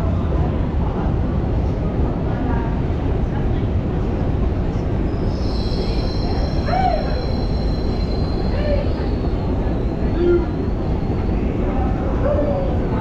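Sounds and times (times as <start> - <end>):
distant voices: 0.0 - 13.0
escalator rumble and hiss: 0.0 - 13.0
faint high whine: 4.8 - 12.2.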